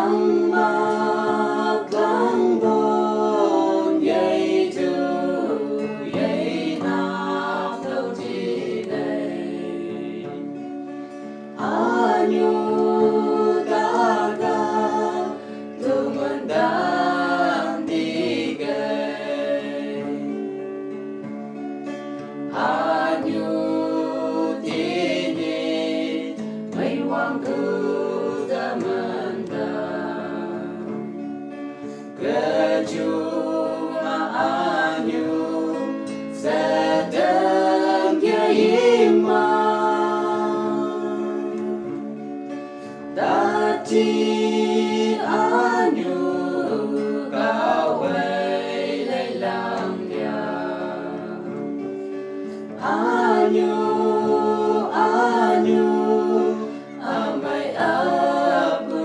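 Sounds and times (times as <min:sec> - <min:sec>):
group singing in harmony: 0:00.0 - 0:21.0, 0:22.2 - 0:59.0.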